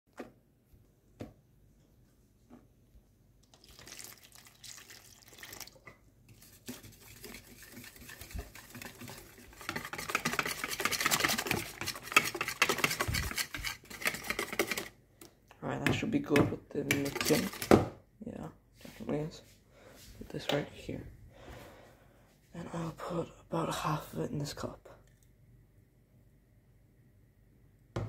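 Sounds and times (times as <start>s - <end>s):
whisk beating batter in a bowl: 6.3s - 15.0s, 16.9s - 17.7s.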